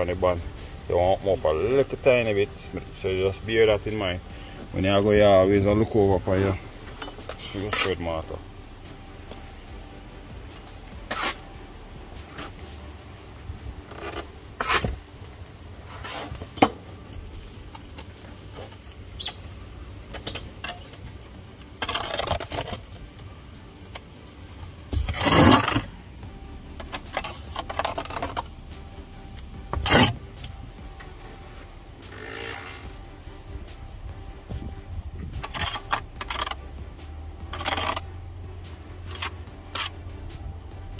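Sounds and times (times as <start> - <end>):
trowel scraping mortar: 4.7 - 8.4, 10.6 - 11.5, 13.9 - 15.0, 21.8 - 23.0, 24.9 - 25.9, 26.8 - 28.5, 29.4 - 30.5, 35.3 - 36.6, 37.4 - 38.1, 39.0 - 40.0.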